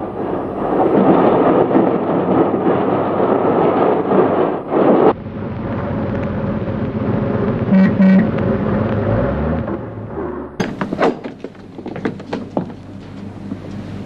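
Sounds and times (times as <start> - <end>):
car engine and tyre noise: 0.0 - 14.0
car horn honks: 7.7 - 8.5.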